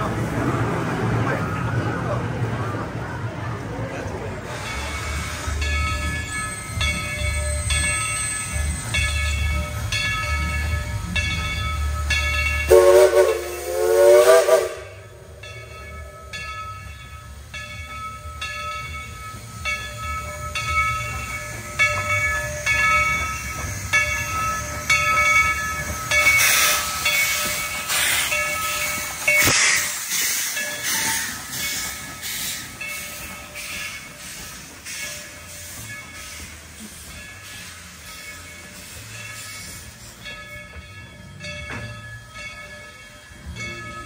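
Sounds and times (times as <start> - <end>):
steam hissing: 4.4 - 11.2, 12.6 - 15.3, 19.3 - 40.4
locomotive bell ringing: 4.5 - 44.0
steam whistle blasts: 12.7 - 15.1.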